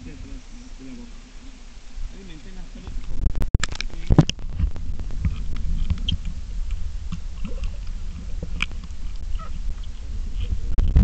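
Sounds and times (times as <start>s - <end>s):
muffled underwater rumble: 0.0s - 11.0s
underwater clicks and crackles: 2.8s - 11.0s.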